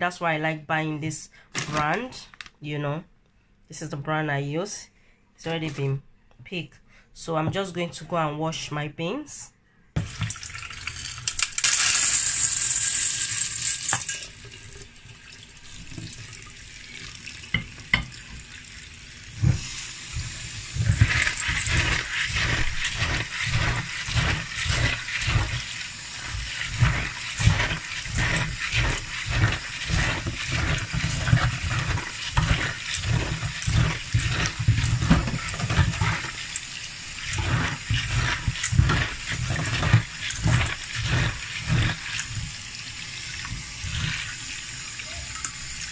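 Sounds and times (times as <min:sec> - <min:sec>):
tap water running: 0:10.0 - 0:45.9
dry beans poured into metal colander: 0:10.3 - 0:14.4, 0:20.7 - 0:36.4
hand swishing beans in water: 0:19.4 - 0:42.7, 0:43.4 - 0:44.6.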